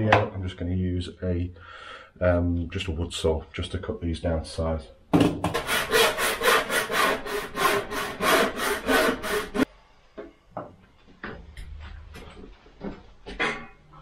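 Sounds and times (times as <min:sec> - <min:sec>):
hand saw cutting plastic pipe: 0:05.5 - 0:09.7.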